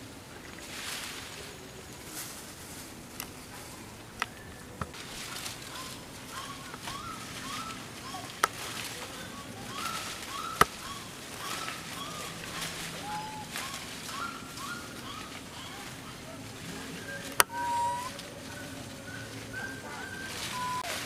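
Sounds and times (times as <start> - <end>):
animal chirping calls: 4.3 - 21.0.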